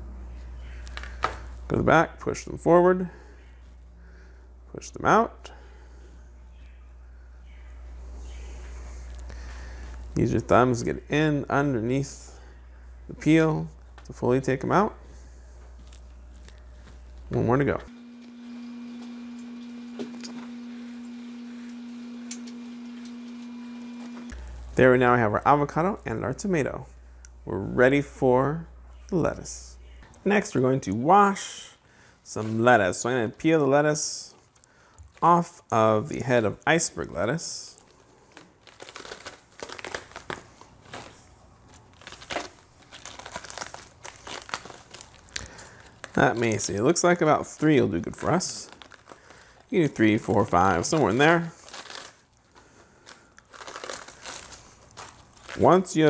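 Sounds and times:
low electrical hum tone: 0:00.0 - 0:56.0
lettuce leaves crinkling and snapping: 0:15.8 - 0:17.4, 0:37.7 - 0:56.0.

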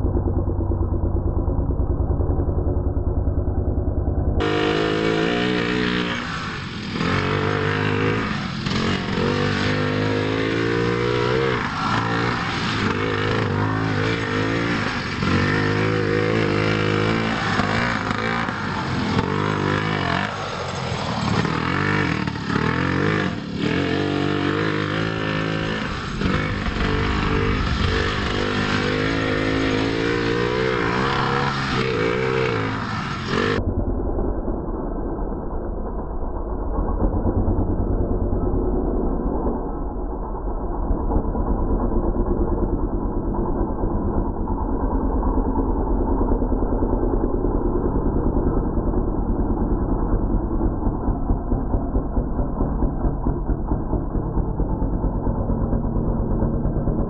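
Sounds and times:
small two-stroke engine revving: 0:04.4 - 0:33.6.

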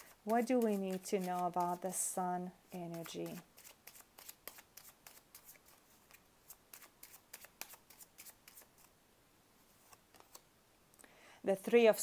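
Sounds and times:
cards shuffling: 0:02.9 - 0:08.9, 0:09.8 - 0:10.5.

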